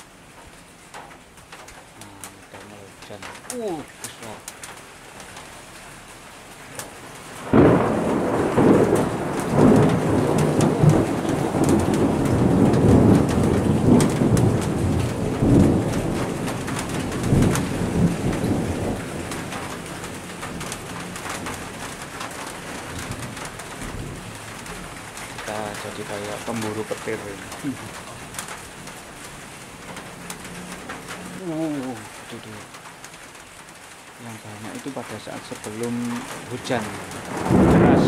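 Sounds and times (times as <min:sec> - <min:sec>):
thunder clap and rumble: 0:06.8 - 0:31.3, 0:34.8 - 0:38.0.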